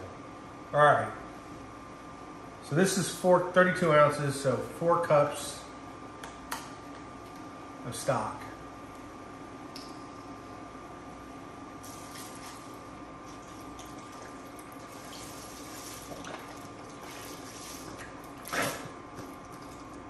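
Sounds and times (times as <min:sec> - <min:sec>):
liquid pouring into a pot: 0:13.4 - 0:18.6.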